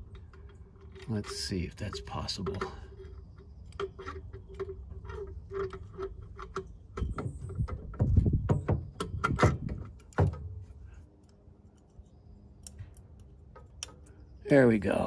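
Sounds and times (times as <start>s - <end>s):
clicks and rattles of engine parts: 0.0s - 11.9s, 12.6s - 14.3s.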